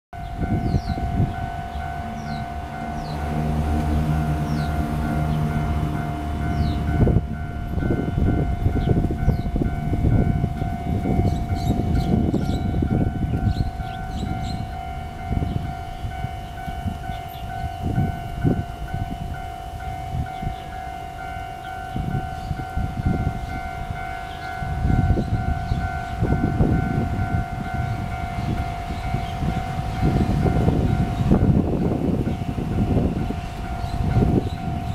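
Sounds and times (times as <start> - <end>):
level crossing alarm tone: 0.2 - 34.9
low rumble: 0.5 - 17.3.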